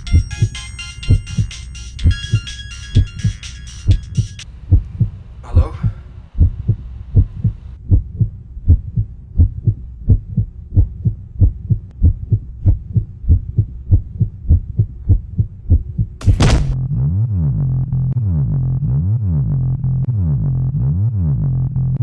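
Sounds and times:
heartbeat thumps: 0.0s - 16.8s
electronic music with wobbling bass: 16.7s - 22.0s.

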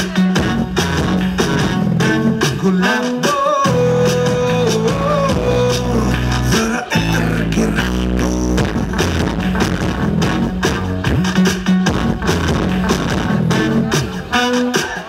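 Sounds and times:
loud dance music: 0.0s - 15.0s.

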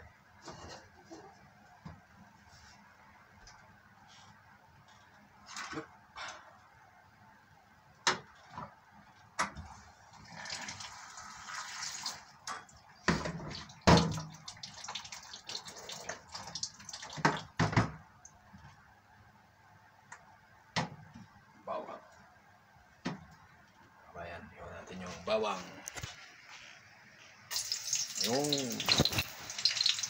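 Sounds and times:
water running: 10.1s - 12.3s, 13.2s - 17.6s, 27.5s - 30.0s.

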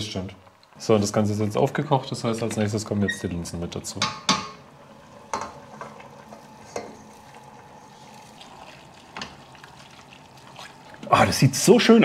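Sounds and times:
faint steady hiss: 0.0s - 12.0s
wooden spoon scraping a pot: 5.1s - 11.1s.

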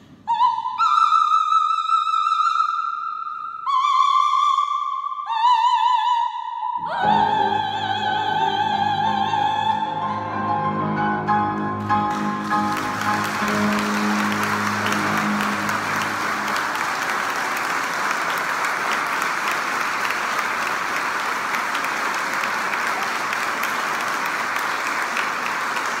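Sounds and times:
audience applauding: 11.5s - 26.0s.

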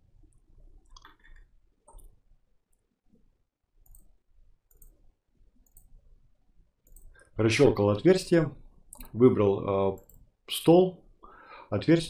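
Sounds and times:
faint computer mouse clicks: 3.8s - 5.0s, 5.6s - 6.0s, 6.8s - 7.3s.

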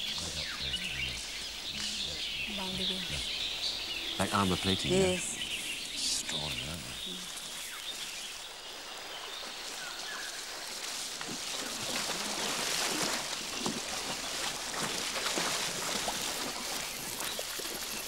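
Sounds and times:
stream water rushing: 1.2s - 18.0s
elephants splashing through water: 7.0s - 18.0s.

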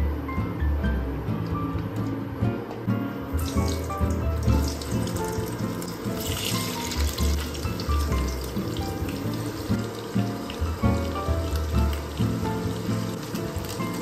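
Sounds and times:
background music: 0.0s - 14.0s
potatoes sizzling in hot oil: 3.3s - 14.0s.

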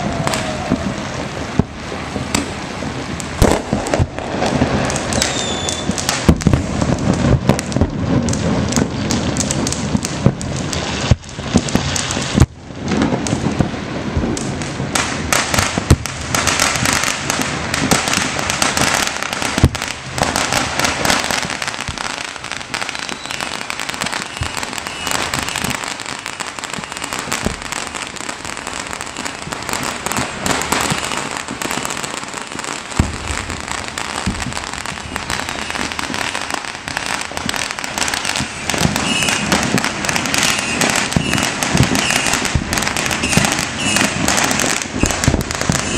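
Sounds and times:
fireworks crackling: 0.0s - 45.9s
loud firework bangs: 0.0s - 45.9s.

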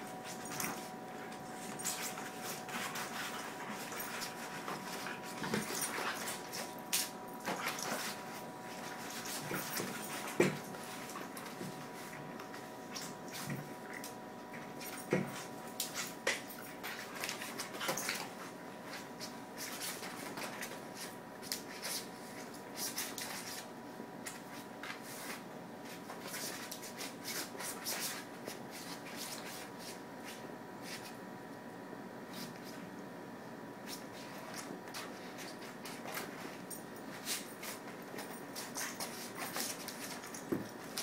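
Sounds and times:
paws scrabbling on wooden floor: 0.2s - 23.5s, 33.9s - 41.0s
dogs scuffling: 0.2s - 23.7s, 33.8s - 41.0s.

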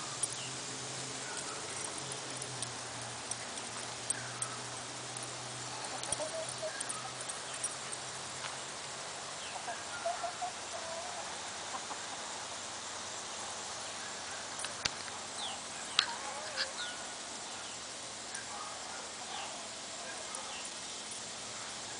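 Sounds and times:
chickens clucking: 1.2s - 7.8s, 9.4s - 12.4s.

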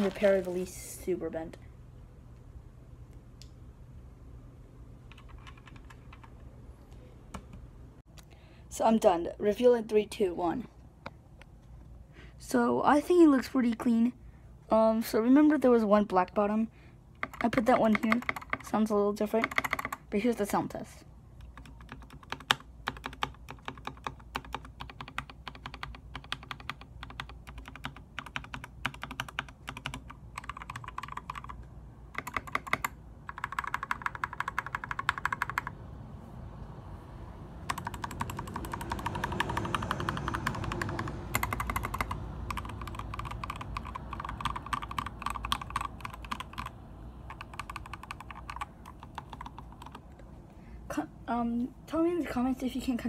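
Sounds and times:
mechanical keyboard typing: 5.1s - 6.4s, 17.2s - 20.0s, 21.4s - 35.8s, 37.7s - 50.2s.

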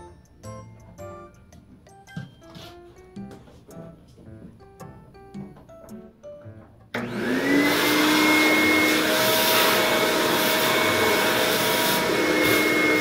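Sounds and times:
shop vacuum running: 6.9s - 13.0s.

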